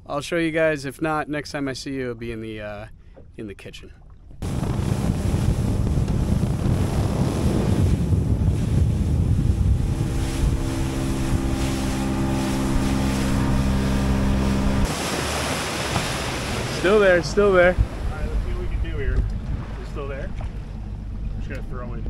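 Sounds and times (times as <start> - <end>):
motorboat engine drone: 4.0 - 22.0
water rushing past hull: 4.0 - 22.0
wind buffeting microphone: 4.4 - 22.0.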